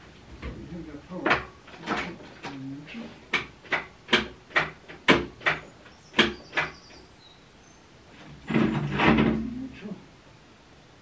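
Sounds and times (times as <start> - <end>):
sharp knocks: 3.3 - 7.0, 8.2 - 9.5.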